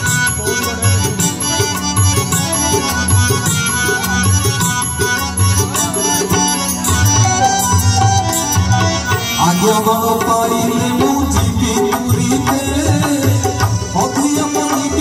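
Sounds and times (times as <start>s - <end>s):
devotional song: 0.0s - 15.0s
hand drum rhythm: 0.0s - 15.0s
harmonium: 0.0s - 15.0s
man singing into a microphone: 9.0s - 15.0s.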